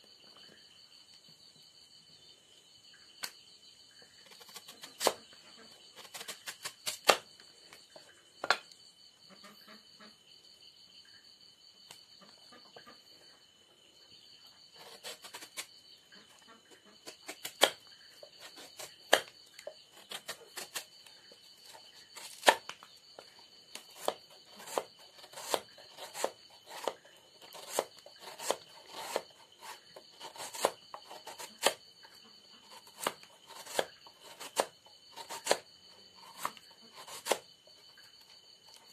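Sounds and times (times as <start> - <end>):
knife cutting on chopping board: 6.0 - 7.2, 17.1 - 17.8, 21.6 - 22.7, 23.8 - 31.8, 32.7 - 35.6, 36.2 - 37.4.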